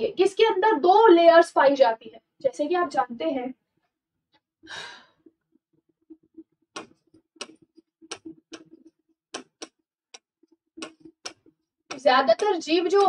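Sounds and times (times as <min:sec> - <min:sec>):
pen clicking on writing board: 0:06.8 - 0:13.0.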